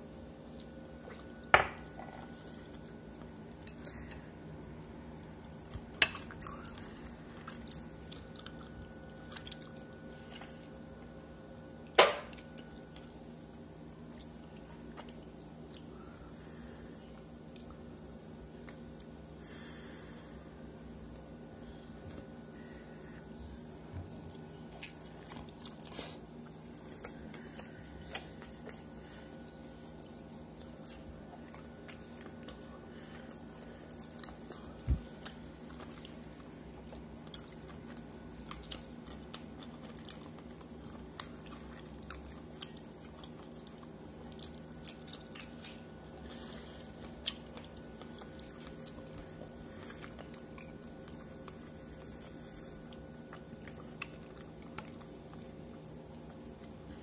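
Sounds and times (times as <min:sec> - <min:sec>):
steady low hum: 0:00.0 - 0:57.0
person chewing: 0:05.2 - 0:10.8, 0:14.0 - 0:16.0, 0:17.1 - 0:19.2, 0:23.1 - 0:57.0.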